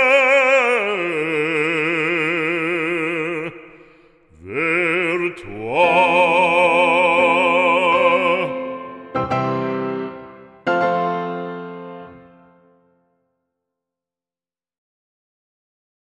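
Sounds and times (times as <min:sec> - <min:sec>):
operatic voice singing: 0:00.0 - 0:09.2.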